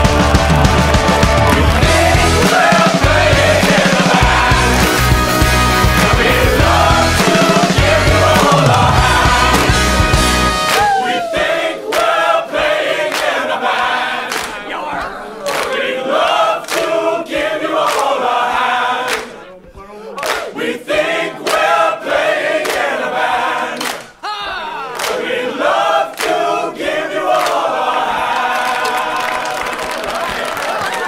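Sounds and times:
percussion beat: 0.0 - 14.8
voices singing in chorus: 0.0 - 30.4.

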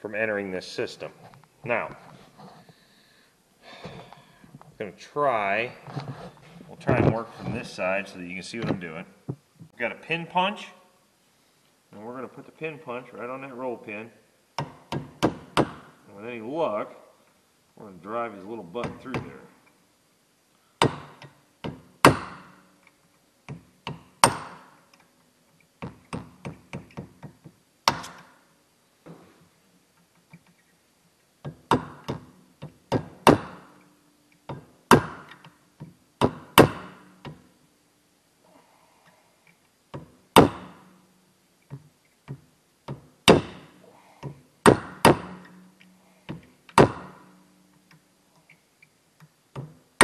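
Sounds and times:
hammer striking metal punch: 24.2 - 24.7.

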